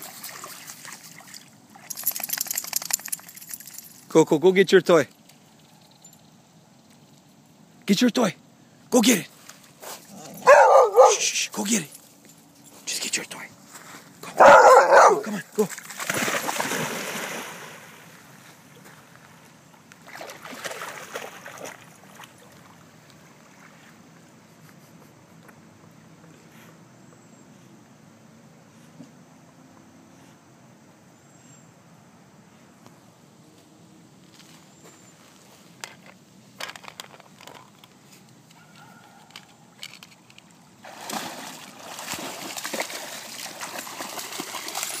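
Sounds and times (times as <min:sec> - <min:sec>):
dog splashing into water: 0:00.0 - 0:03.5, 0:14.7 - 0:18.2, 0:20.0 - 0:22.8, 0:40.8 - 0:45.0
water sloshing: 0:00.0 - 0:03.9, 0:14.2 - 0:19.0, 0:20.0 - 0:23.9, 0:40.8 - 0:45.0
faint water lapping: 0:13.6 - 0:25.1, 0:40.8 - 0:45.0.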